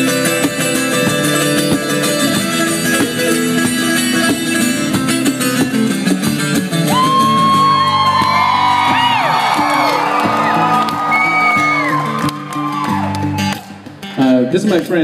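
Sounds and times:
acoustic guitar plucked notes: 0.0 - 15.0
audience whooping and whistling: 6.9 - 13.8.

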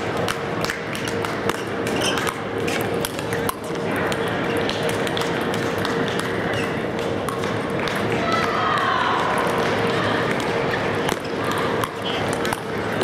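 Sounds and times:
murmur of voices: 0.0 - 13.0.

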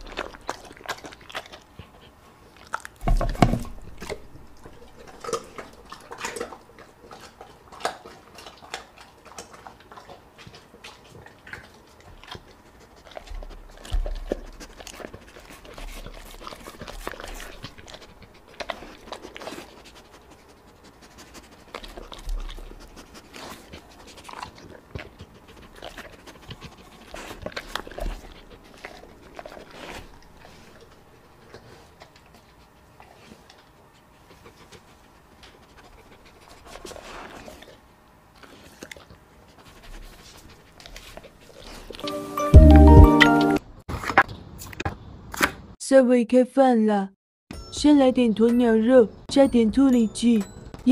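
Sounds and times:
dog licking wet board: 0.0 - 37.8
dog panting: 0.0 - 43.0.

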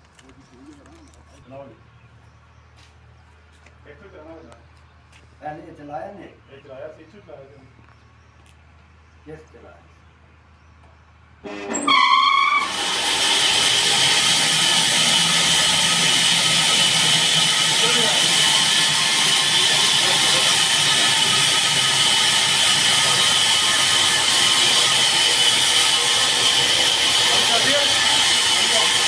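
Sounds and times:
saw running with high whine: 11.4 - 29.0.

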